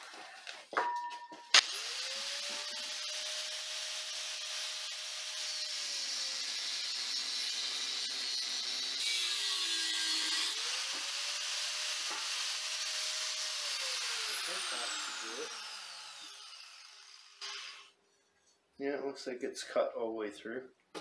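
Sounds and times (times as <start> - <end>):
angle grinder motor whine: 1.6 - 5.8, 10.5 - 17.9.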